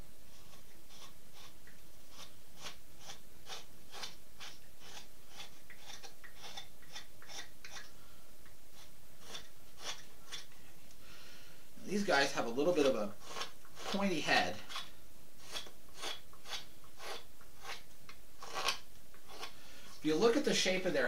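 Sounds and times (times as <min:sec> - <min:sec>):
knife slicing wood: 0:00.3 - 0:07.9, 0:08.8 - 0:10.5, 0:12.8 - 0:19.6.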